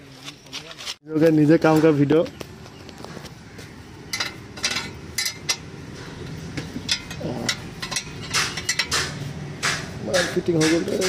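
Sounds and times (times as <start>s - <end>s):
metal wrench clinking on bolts: 4.1s - 5.7s, 6.8s - 9.1s.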